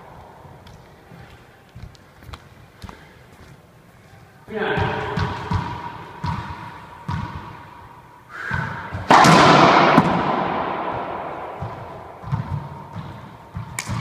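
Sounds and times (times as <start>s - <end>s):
loud echoing racquet hit: 4.5s - 14.0s
ball bouncing on wooden floor: 4.8s - 7.7s, 8.5s - 14.0s.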